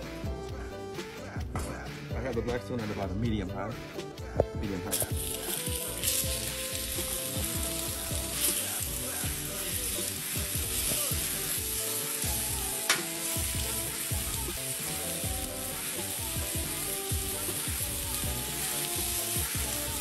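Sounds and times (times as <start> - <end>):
chicken sizzling on griddle: 4.9 - 20.0.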